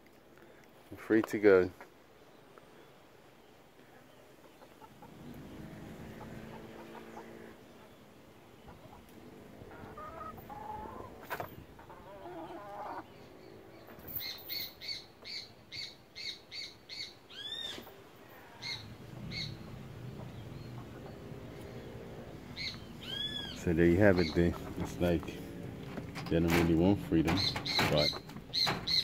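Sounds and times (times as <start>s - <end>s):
hens clucking: 4.4s - 14.1s, 17.6s - 29.0s
rising and falling bird calls: 4.4s - 26.1s, 27.2s - 29.0s
high bird chirps: 13.0s - 17.8s, 18.6s - 24.8s, 27.3s - 29.0s.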